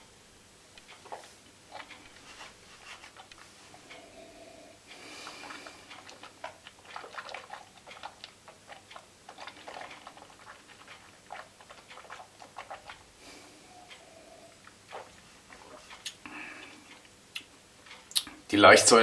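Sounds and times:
person sipping: 0:01.0 - 0:17.5
wet mouth clicks and smacks: 0:05.2 - 0:13.1.

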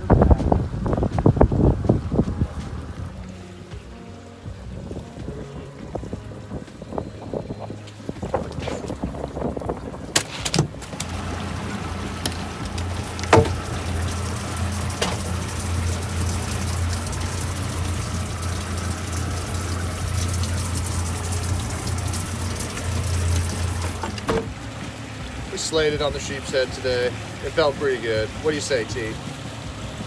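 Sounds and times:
pump humming: 0:00.0 - 0:30.0
water trickling: 0:00.0 - 0:30.0
sharp knocks: 0:13.2 - 0:13.6.

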